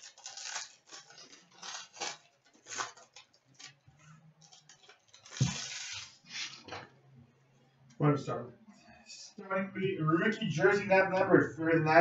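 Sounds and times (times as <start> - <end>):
foil wrapper tearing and crinkling: 0.0 - 3.8, 4.4 - 6.7.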